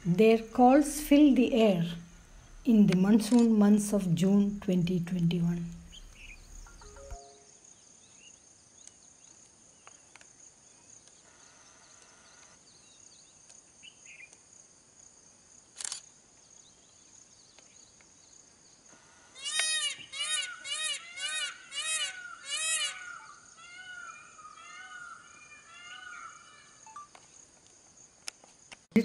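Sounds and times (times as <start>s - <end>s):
faint bird chirps: 5.2s - 14.4s
peafowl calling: 19.0s - 26.8s.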